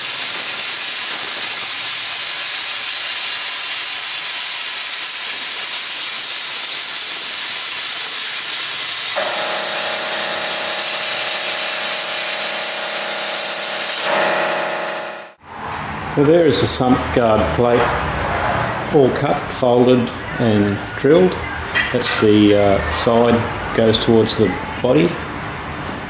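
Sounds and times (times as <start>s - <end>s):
plasma cutter hissing: 0.0s - 15.4s
multi-tone hum: 9.2s - 15.4s.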